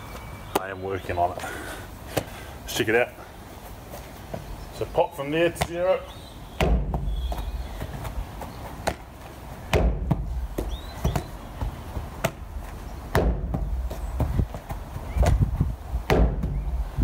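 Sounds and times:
ball slapping into hands: 8.8s - 11.4s, 15.2s - 16.6s.

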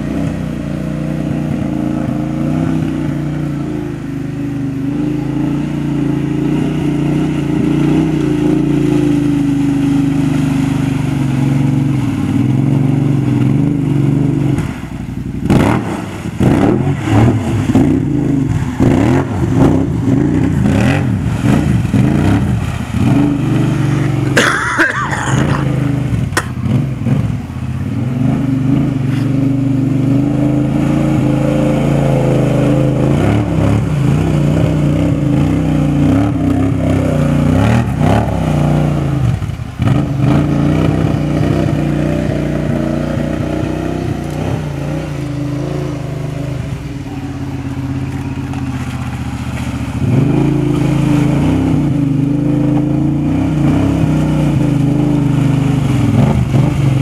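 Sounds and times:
atv engine revving: 0.0s - 57.0s
tires churning through muddy water: 0.0s - 57.0s.

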